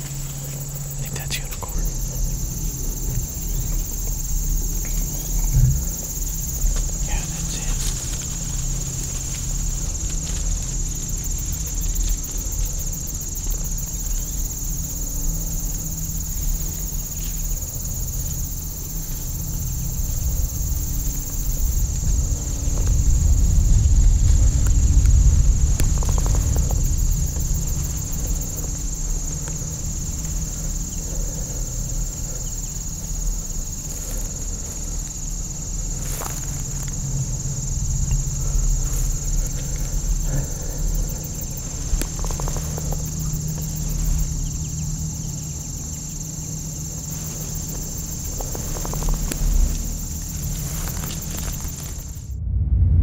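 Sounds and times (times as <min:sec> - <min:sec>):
insects trilling: 0:00.0 - 0:52.4
low rumble: 0:00.0 - 0:53.0
faint rustles and snaps: 0:07.6 - 0:13.6, 0:41.5 - 0:44.2, 0:47.0 - 0:52.3.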